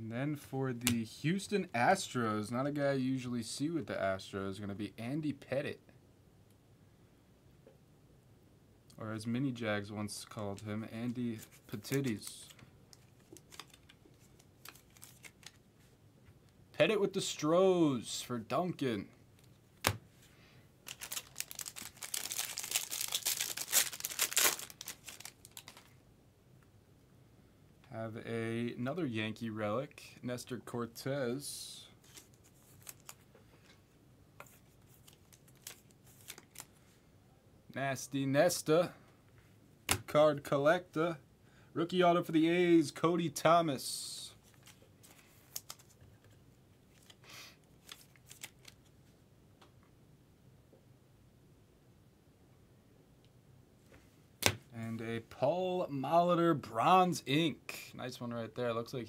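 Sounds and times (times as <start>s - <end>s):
packaging rustling: 11.4s - 15.6s, 20.8s - 26.0s, 32.0s - 33.3s, 34.4s - 36.8s, 47.8s - 48.9s
plastic wrapper crinkling and tearing: 11.4s - 15.6s, 20.8s - 26.0s, 32.0s - 33.3s, 34.7s - 36.8s, 44.4s - 46.3s, 46.9s - 47.2s, 47.8s - 48.9s.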